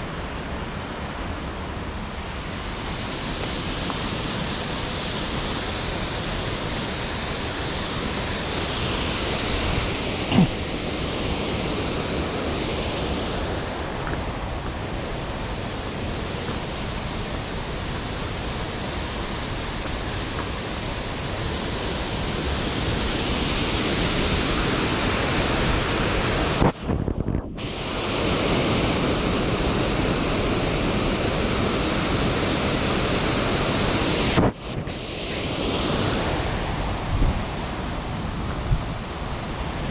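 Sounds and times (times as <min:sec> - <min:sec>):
stream water flowing: 0:00.0 - 0:26.7.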